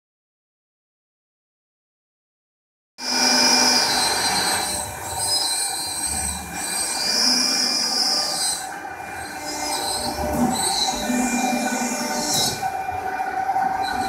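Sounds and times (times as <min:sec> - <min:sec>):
router spindle whining: 0:03.0 - 0:14.0
steady mechanical rush: 0:03.2 - 0:14.0.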